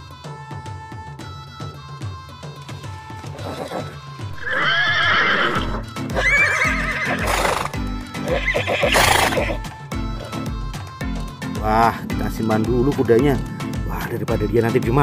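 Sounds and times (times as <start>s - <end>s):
horses neighing: 3.3s - 10.5s.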